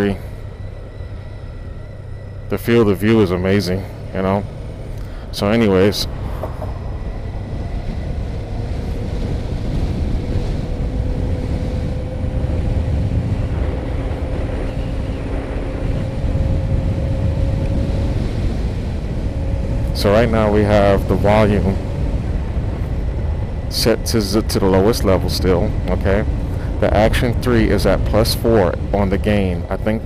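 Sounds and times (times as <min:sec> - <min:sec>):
faint steady tone: 0:00.0 - 0:09.3
road and engine rumble: 0:00.0 - 0:30.0
wind rush in helmet: 0:00.0 - 0:30.0.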